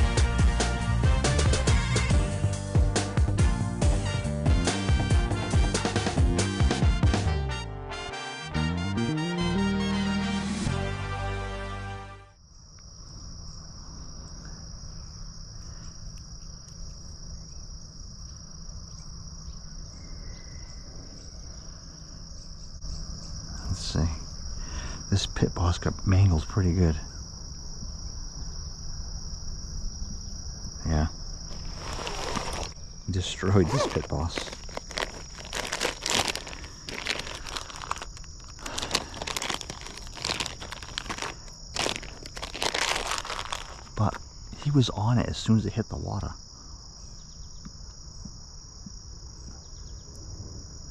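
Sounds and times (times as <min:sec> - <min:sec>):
crickets trilling: 0:12.4 - 0:50.9
plastic package crinkling: 0:31.5 - 0:32.8, 0:33.5 - 0:44.2.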